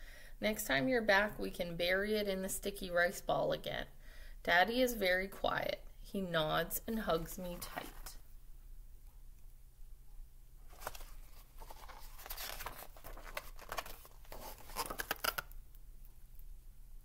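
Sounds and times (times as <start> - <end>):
book pages turning: 10.7 - 15.6.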